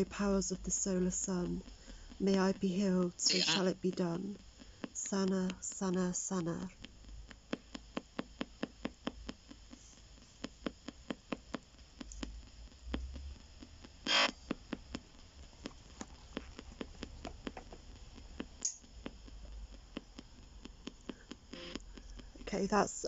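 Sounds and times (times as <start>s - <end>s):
faint static: 0.0s - 23.0s
radio scanner ticking: 0.0s - 23.0s
burst of radio static: 3.1s - 4.1s, 14.0s - 14.4s.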